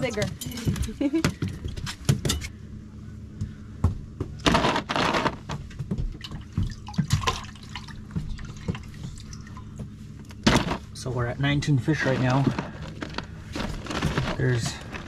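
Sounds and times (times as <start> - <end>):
water splashing and running: 6.2 - 9.8.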